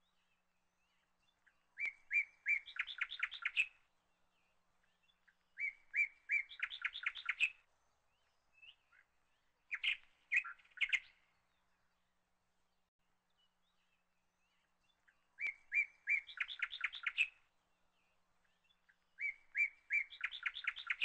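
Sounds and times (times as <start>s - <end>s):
bird singing: 0.0s - 21.0s.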